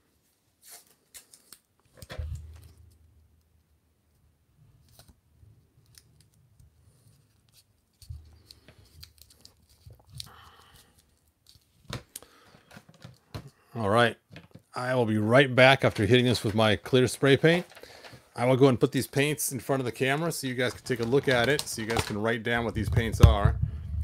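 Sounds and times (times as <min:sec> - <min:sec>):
tape crinkling: 0:05.8 - 0:13.2, 0:15.6 - 0:18.2, 0:20.0 - 0:23.4.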